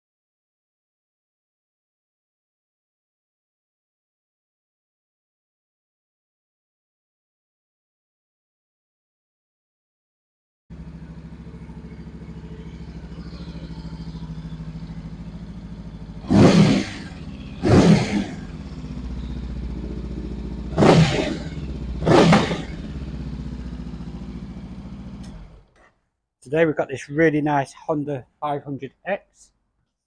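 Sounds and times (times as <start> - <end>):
motorcycle engine idling: 10.7 - 25.9
motorcycle throttle blips: 10.7 - 25.9.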